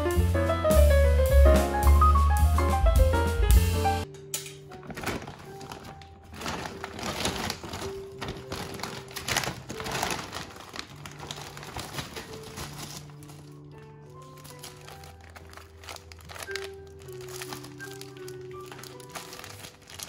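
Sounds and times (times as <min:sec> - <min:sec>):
jazz piano and bass music: 0:00.0 - 0:20.0
soft background music: 0:00.0 - 0:20.0
packaging rustling and crinkling: 0:04.7 - 0:20.0.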